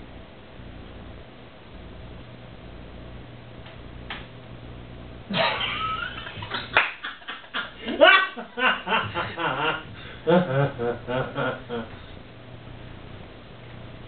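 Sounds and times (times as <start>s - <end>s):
person laughing: 5.3s - 12.0s.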